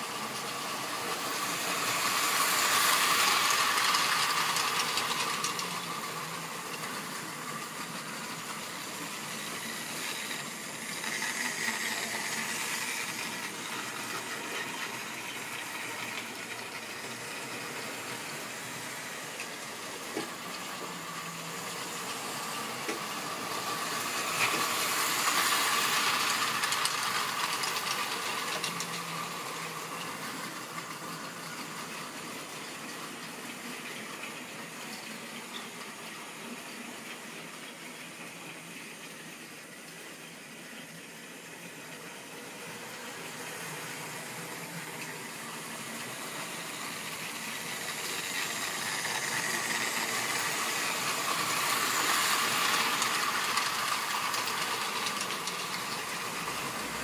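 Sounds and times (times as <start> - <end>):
model train wheels rattling: 0.0 - 38.5, 39.4 - 57.0
small electric motor whine: 42.9 - 57.0.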